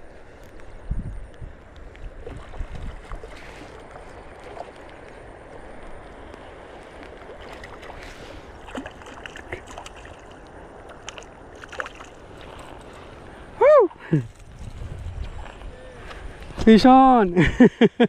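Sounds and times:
flowing river water: 0:00.0 - 0:14.1.

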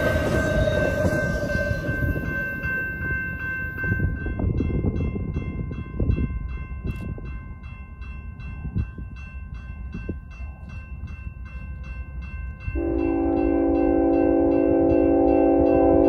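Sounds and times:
level-crossing warning bell: 0:00.0 - 0:16.0
locomotive air horn: 0:12.8 - 0:16.0.

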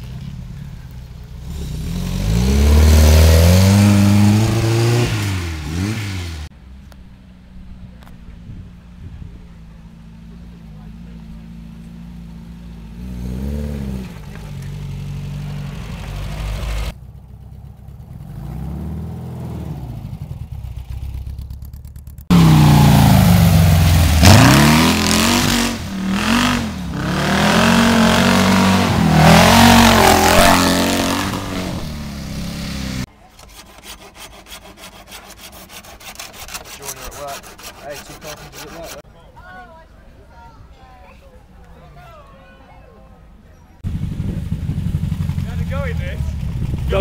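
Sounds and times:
buggy engines revving: 0:00.0 - 0:33.3, 0:43.6 - 0:47.0
wheels spinning in loose dirt: 0:06.8 - 0:33.7, 0:43.8 - 0:47.0
rough sawing-like scraping: 0:23.7 - 0:39.1.

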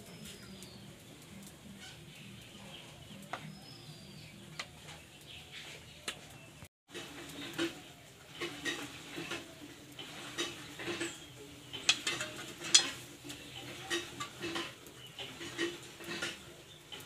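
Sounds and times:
metal spatula scraping a pot: 0:06.9 - 0:17.0.

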